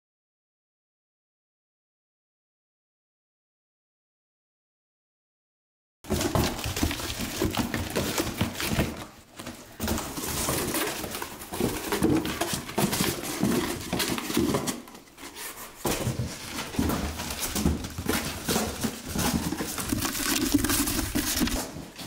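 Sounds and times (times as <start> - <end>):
cardboard rustling and scraping: 6.1 - 22.0.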